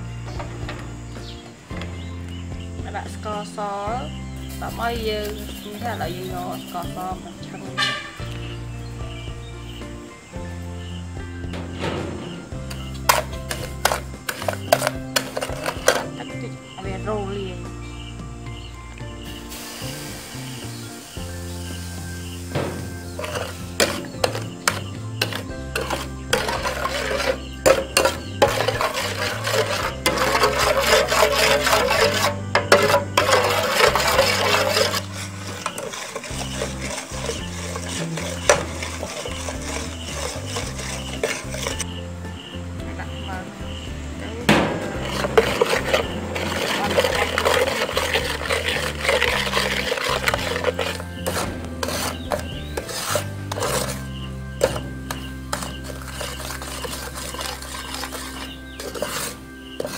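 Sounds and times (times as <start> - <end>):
background music with bass line: 0.0 - 59.9
metal spatula scraping sugar in pan: 11.6 - 16.8, 19.3 - 41.9, 44.6 - 59.9.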